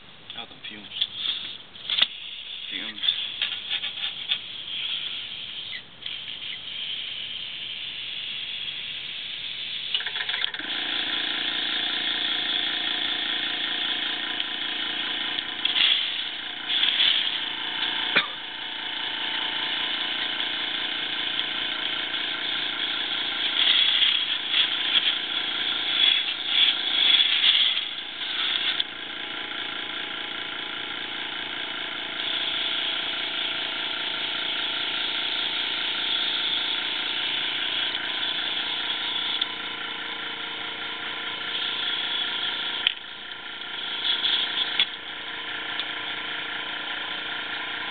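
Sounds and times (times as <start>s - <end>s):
small air compressor running: 0.7s - 47.9s
airbrush spraying hiss: 4.4s - 9.9s, 15.7s - 18.1s.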